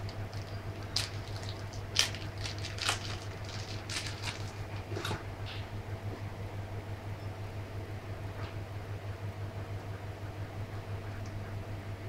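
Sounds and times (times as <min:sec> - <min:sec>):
plastic bag crinkling: 0:00.1 - 0:04.8.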